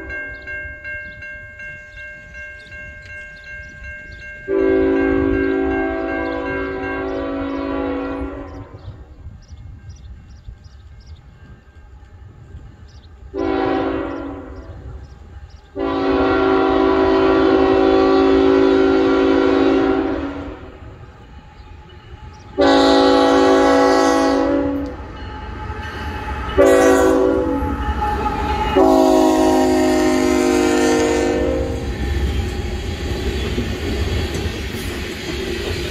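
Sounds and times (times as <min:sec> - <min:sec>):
train rumbling: 0:00.0 - 0:35.9
locomotive air horn blasts: 0:04.5 - 0:08.8, 0:13.3 - 0:14.8, 0:15.8 - 0:20.9, 0:22.6 - 0:25.1, 0:26.1 - 0:31.9.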